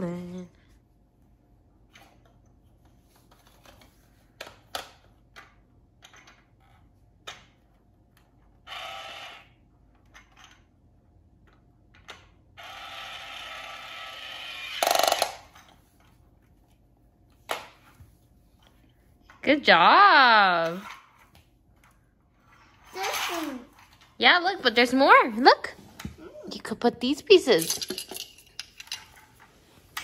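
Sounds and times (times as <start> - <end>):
toy drill whirring: 8.6 - 9.6, 12.6 - 15.6.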